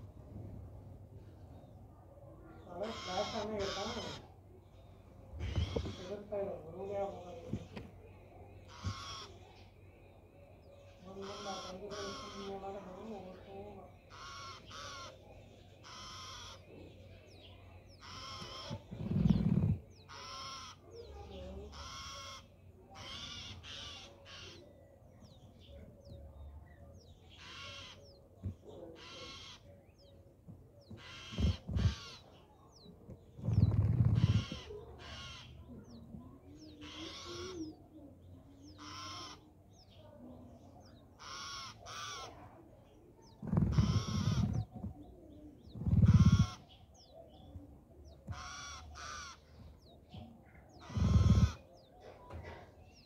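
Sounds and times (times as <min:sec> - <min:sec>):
crows cawing: 0:02.8 - 0:04.3, 0:05.4 - 0:06.2, 0:08.7 - 0:09.4, 0:11.2 - 0:12.6, 0:14.1 - 0:15.2, 0:15.8 - 0:16.7, 0:18.0 - 0:18.8, 0:20.1 - 0:20.8, 0:21.7 - 0:24.6, 0:27.4 - 0:28.1, 0:29.0 - 0:29.7, 0:31.0 - 0:32.2, 0:34.1 - 0:35.6, 0:36.8 - 0:37.6, 0:38.8 - 0:39.4, 0:41.2 - 0:42.4, 0:48.3 - 0:49.6.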